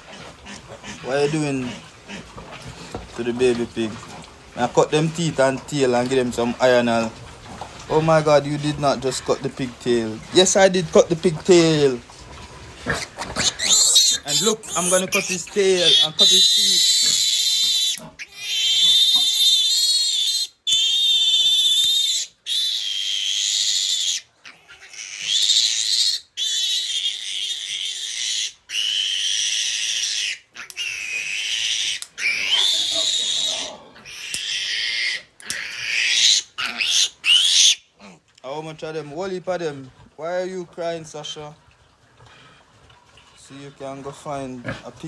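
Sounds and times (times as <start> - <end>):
piglet squealing: 12.8 - 38.2.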